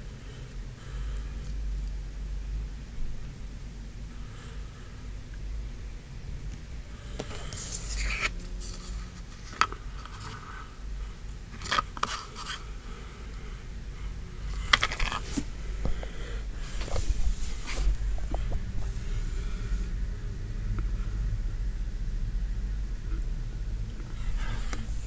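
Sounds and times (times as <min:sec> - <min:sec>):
camera handling rumble: 0:07.2 - 0:10.5, 0:11.5 - 0:12.7, 0:14.5 - 0:19.7, 0:24.0 - 0:25.0.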